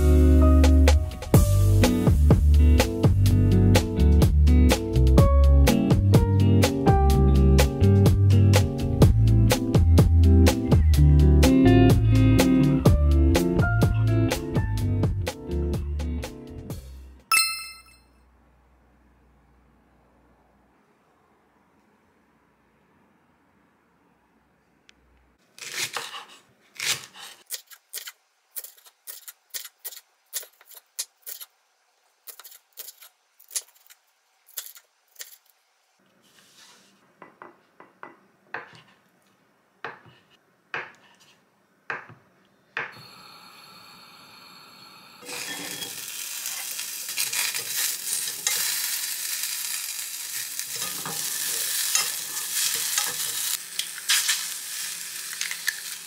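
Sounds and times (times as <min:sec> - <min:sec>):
knife chopping on wooden board: 0:37.4 - 0:38.9, 0:39.8 - 0:41.1, 0:41.9 - 0:42.2
onions sizzling in oil: 0:43.0 - 0:56.0
chopsticks stirring in pan: 0:45.3 - 0:56.0.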